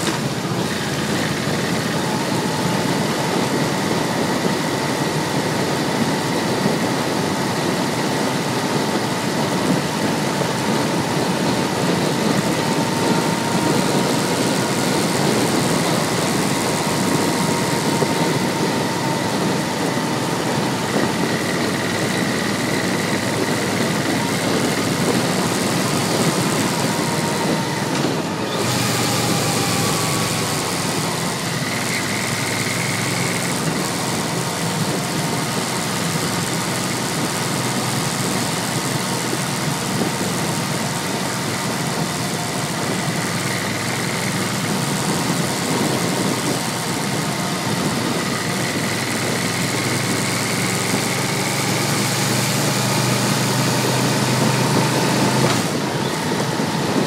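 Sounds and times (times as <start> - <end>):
motorcycle engine running: 0.0 - 57.0
road noise: 0.0 - 57.0
rushing wind: 0.0 - 57.0.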